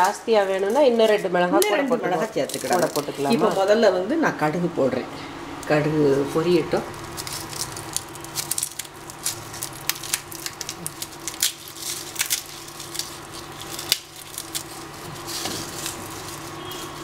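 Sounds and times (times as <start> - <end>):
mustard seeds popping in oil: 0.0 - 3.2, 7.0 - 17.0
steady low hum: 0.0 - 17.0.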